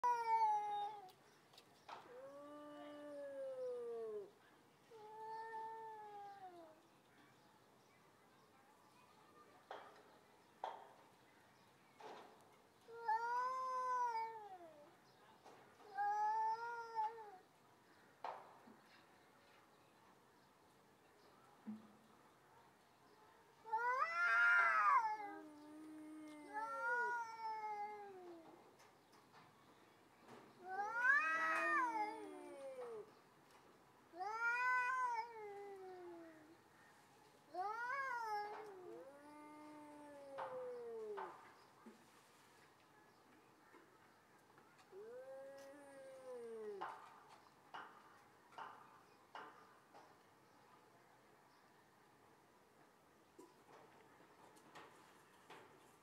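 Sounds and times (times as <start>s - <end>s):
cats yowling: 0.0s - 1.1s, 13.0s - 14.8s, 23.7s - 28.6s, 30.6s - 33.1s, 34.2s - 36.5s, 37.5s - 41.4s, 44.9s - 46.9s
cat moaning low: 2.1s - 4.3s, 23.8s - 28.5s, 30.6s - 33.1s, 37.6s - 41.2s, 44.9s - 46.8s.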